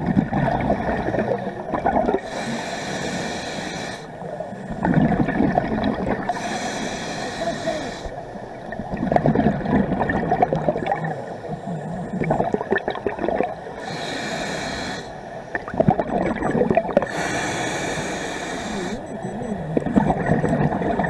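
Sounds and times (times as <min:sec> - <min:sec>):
underwater exhale bubbling: 0:00.0 - 0:04.0, 0:04.8 - 0:06.8, 0:08.7 - 0:21.0
regulator hissing inhale: 0:02.2 - 0:04.1, 0:06.3 - 0:08.2, 0:13.8 - 0:15.2, 0:17.1 - 0:19.0.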